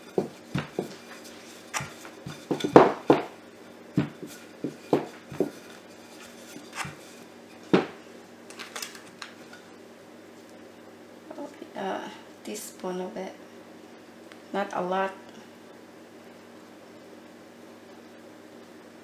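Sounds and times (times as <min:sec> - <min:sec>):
rolling pin rolling dough: 0:00.0 - 0:08.0
rolling pin knocking on wooden table: 0:00.2 - 0:01.0, 0:01.8 - 0:03.3, 0:04.0 - 0:05.6, 0:07.7 - 0:08.0.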